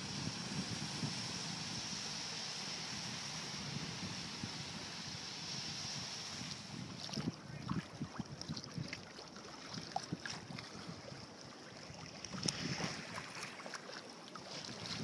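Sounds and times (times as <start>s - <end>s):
wash of moving water: 0.0s - 15.0s
water slapping kayak hull: 6.9s - 15.0s.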